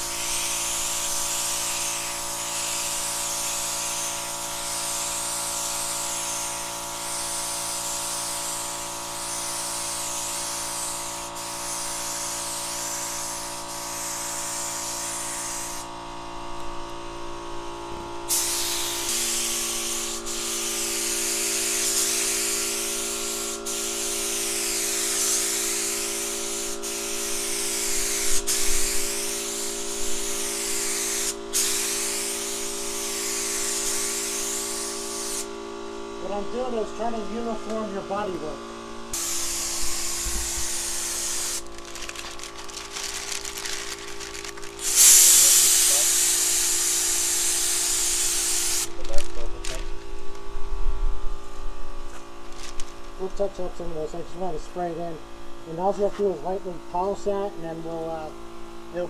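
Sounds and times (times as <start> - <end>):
spray gun hissing: 0.0 - 15.9, 18.3 - 35.5, 39.2 - 49.7
steady hum: 25.8 - 46.8, 47.9 - 59.0.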